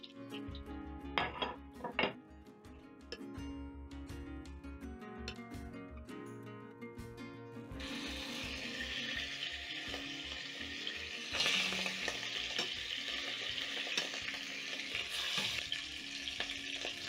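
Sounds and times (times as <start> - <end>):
meat sizzling in hot oil: 7.8 - 17.0.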